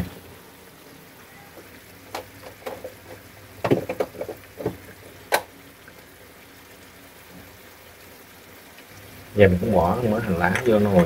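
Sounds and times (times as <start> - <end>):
braise simmering in a wok: 0.0 - 11.0.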